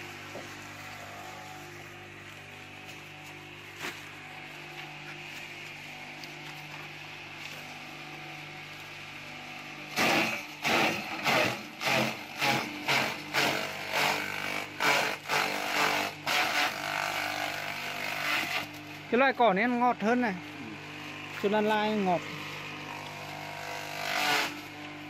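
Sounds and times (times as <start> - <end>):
grass stalks being chopped: 2.8 - 4.1.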